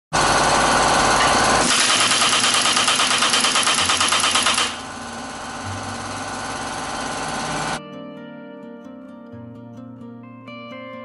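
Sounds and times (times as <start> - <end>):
impact wrench hammering: 1.2 - 7.8.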